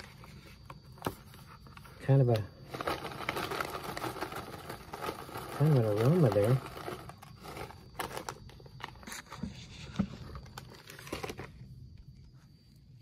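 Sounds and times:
plastic chip bag crinkling: 0:02.0 - 0:11.6.

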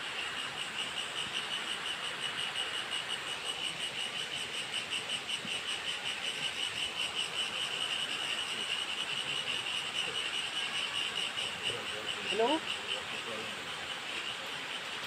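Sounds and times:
insects trilling: 0:00.0 - 0:15.0.

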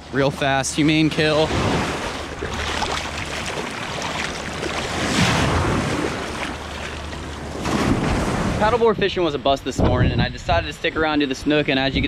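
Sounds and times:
water splashing: 0:00.4 - 0:08.7
surf washing in: 0:01.0 - 0:09.0.

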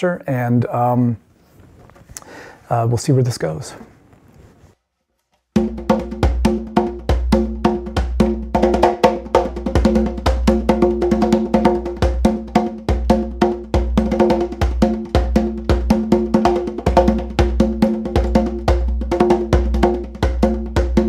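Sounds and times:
hand drum strokes: 0:05.6 - 0:21.0.

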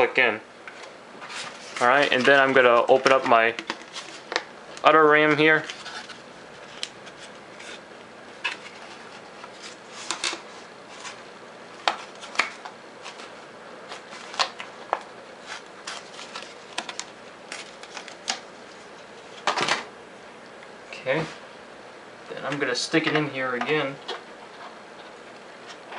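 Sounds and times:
plastic packaging crackling: 0:11.8 - 0:19.6.

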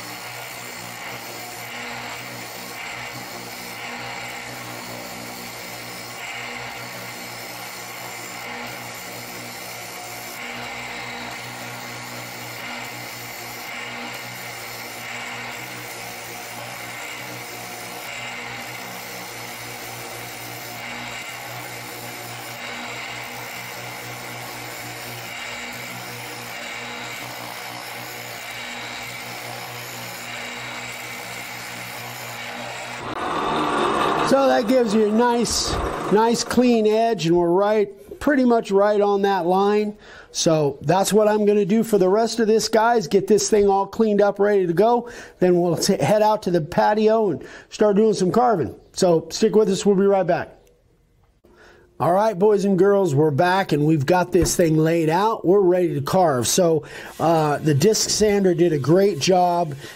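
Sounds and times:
sander motor hum: 0:00.0 - 0:37.4, 0:54.2 - 0:59.9
sanding disc grinding wood: 0:00.0 - 0:38.2, 0:52.1 - 0:59.9.

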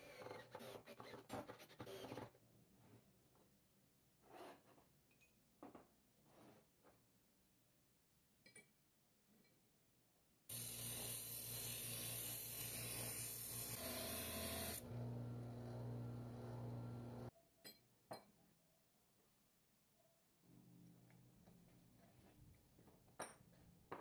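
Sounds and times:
electric power tool hissing: 0:10.5 - 0:15.0
motor hum: 0:13.5 - 0:17.3.

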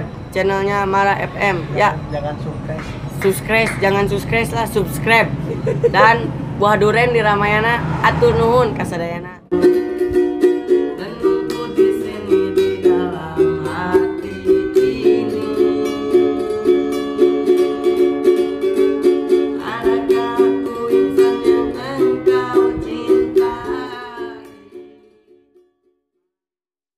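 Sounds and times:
plucked string instrumental music: 0:09.5 - 0:26.1.

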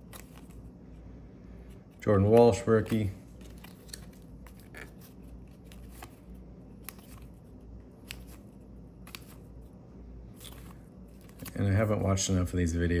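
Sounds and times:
cards flicking and sliding: 0:00.0 - 0:00.7, 0:02.0 - 0:09.6, 0:10.3 - 0:11.6.

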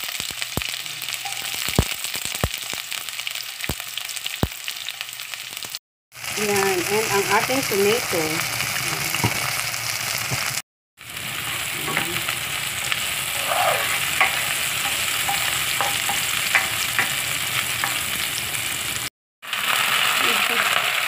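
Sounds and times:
vegetables sizzling in hot oil: 0:00.0 - 0:21.0
spatula scraping pan: 0:11.4 - 0:18.3.

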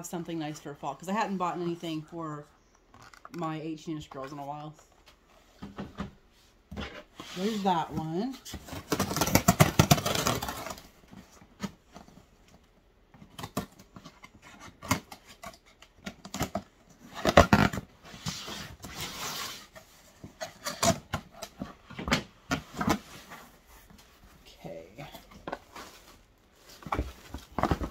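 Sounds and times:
scraping and rustling cardboard: 0:06.4 - 0:12.4, 0:13.2 - 0:27.9
packing tape tearing: 0:08.8 - 0:10.9, 0:14.6 - 0:19.6.

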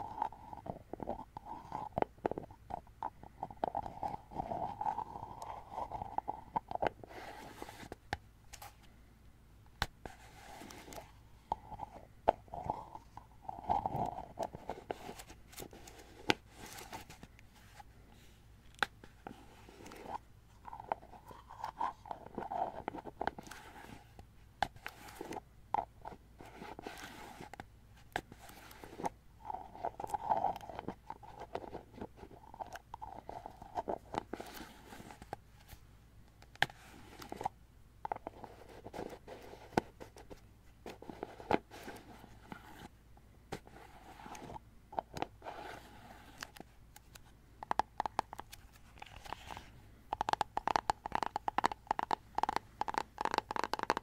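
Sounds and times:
fingers tapping on plastic: 0:47.6 - 0:48.5, 0:50.1 - 0:54.0.

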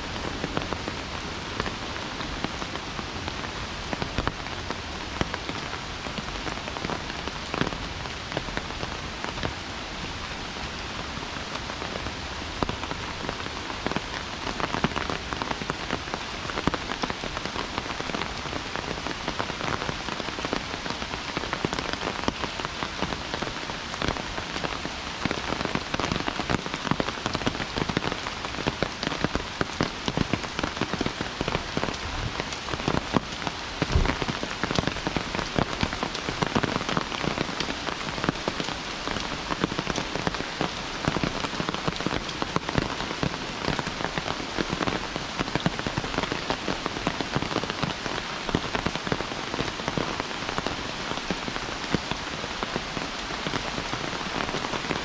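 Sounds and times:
heavy rain falling: 0:00.0 - 0:55.0
low thump: 0:33.9 - 0:34.2.

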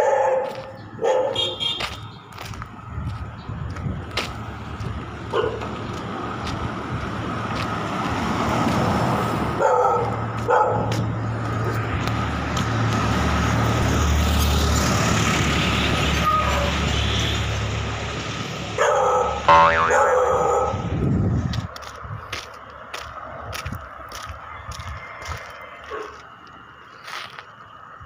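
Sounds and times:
dog barking: 0:00.0 - 0:01.6, 0:05.3 - 0:05.7, 0:09.6 - 0:11.0, 0:18.8 - 0:20.8, 0:25.9 - 0:26.2
vehicle passing: 0:02.5 - 0:16.2.

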